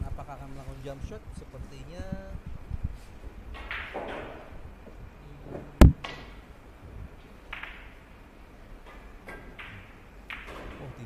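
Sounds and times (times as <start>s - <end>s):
soft hissy rustles: 0.0s - 3.7s.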